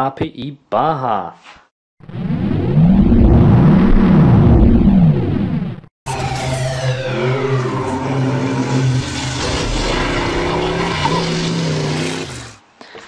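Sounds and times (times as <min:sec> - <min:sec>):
model car motor revving: 0:09.4 - 0:12.6.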